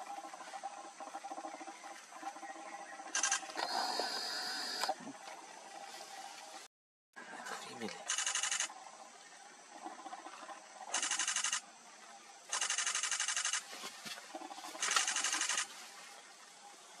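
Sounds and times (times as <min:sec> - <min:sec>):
camera shutter bursts: 0:03.1 - 0:04.9, 0:08.1 - 0:08.7, 0:10.9 - 0:11.6, 0:12.5 - 0:13.7, 0:14.8 - 0:15.7.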